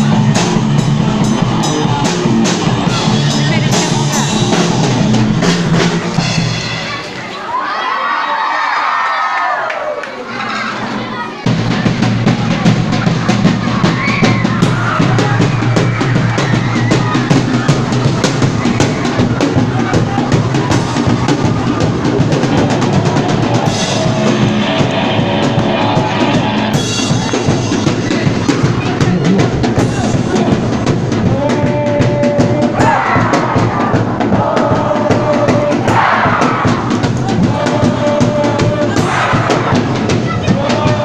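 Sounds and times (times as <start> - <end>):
drum kit fast beat: 0.0 - 7.0, 11.5 - 41.0
electric guitar: 21.0 - 28.2.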